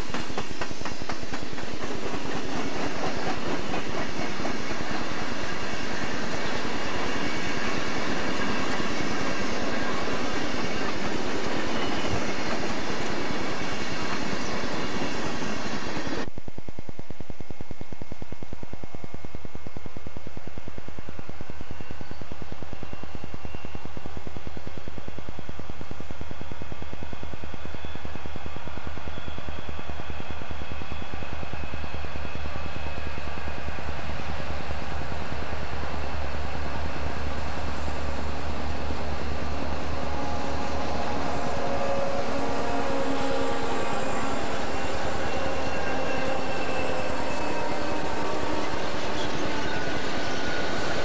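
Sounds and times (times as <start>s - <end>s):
diesel locomotive engines throbbing: 17.3s - 51.0s
thin whining tones: 37.2s - 51.0s.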